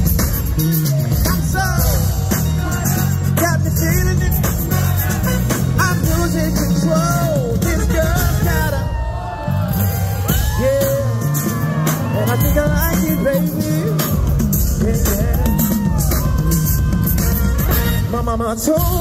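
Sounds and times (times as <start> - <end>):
live band playing r and b song: 0.0 - 19.0
person singing: 10.3 - 19.0.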